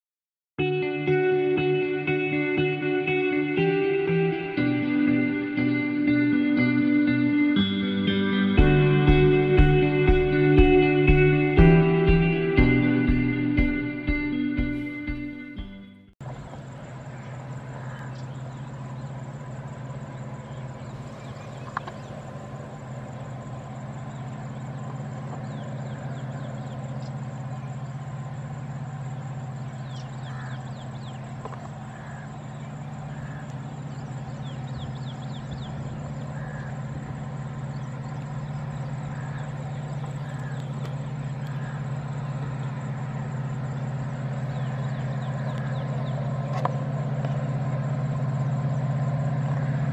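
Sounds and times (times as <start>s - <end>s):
birds chirping: 0.8s - 49.9s
diesel locomotive engine hum: 1.1s - 49.9s.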